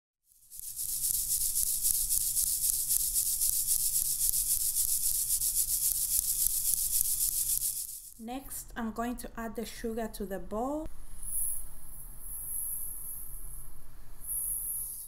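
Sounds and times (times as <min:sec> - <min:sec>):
flour sifting through metal sieve: 0:00.3 - 0:08.2.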